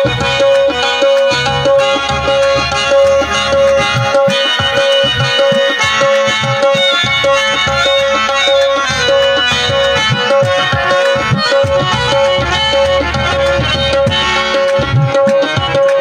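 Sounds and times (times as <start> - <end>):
hand drum rhythm: 0.0 - 16.0
harmonium melody: 0.0 - 16.0.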